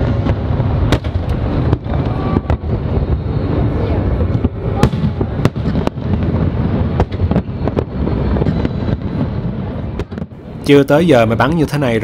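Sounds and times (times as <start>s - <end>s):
firework bangs: 0.0s - 11.4s.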